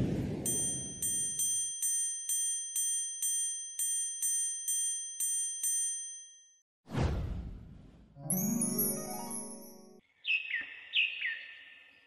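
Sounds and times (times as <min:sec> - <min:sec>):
high ringing tone: 0:00.5 - 0:06.6
bright chime strikes: 0:08.2 - 0:10.0.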